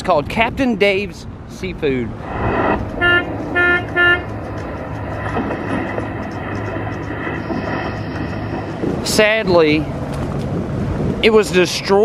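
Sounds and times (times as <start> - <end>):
low rumble of vehicles: 0.0 - 12.0
vehicle horn toots: 3.0 - 4.3.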